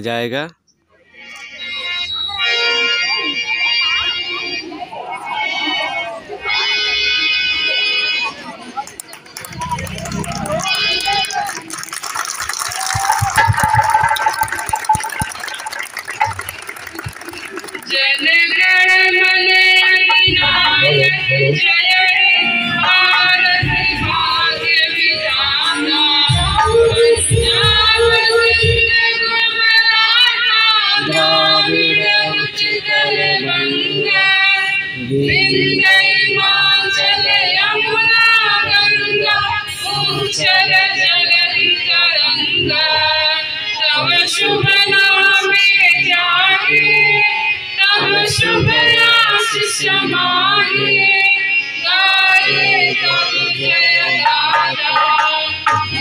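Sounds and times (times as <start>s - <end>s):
woman singing: 17.9s - 56.0s
instrumental backing: 54.2s - 56.0s.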